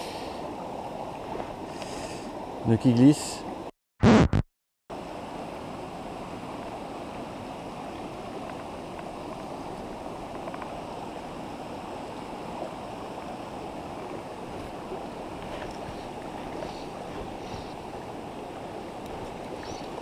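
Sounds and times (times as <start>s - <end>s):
stream rushing over stones: 4.9s - 20.0s.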